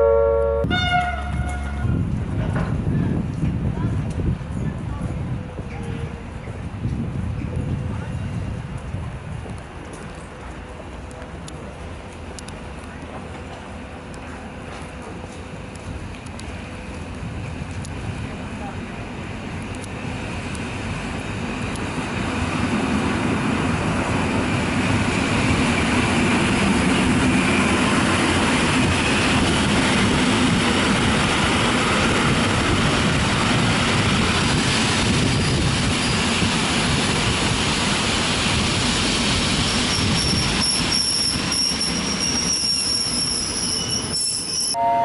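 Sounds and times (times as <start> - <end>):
train wheels rumbling on rail: 0.6 - 44.8
thin high squeal: 40.0 - 44.8.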